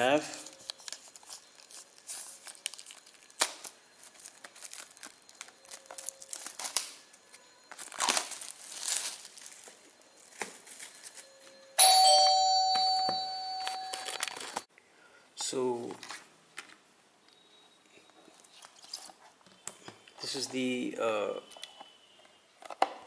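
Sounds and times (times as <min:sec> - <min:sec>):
plastic wrap crinkling and tearing: 0:00.3 - 0:07.1, 0:07.7 - 0:11.2, 0:13.6 - 0:14.7
bell-like chime: 0:10.0 - 0:14.7.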